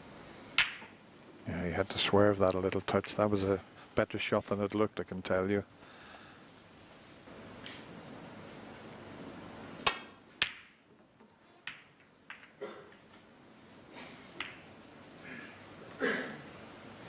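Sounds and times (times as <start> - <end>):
snooker balls clicking: 0.6 - 1.0, 9.8 - 13.3, 14.3 - 14.8.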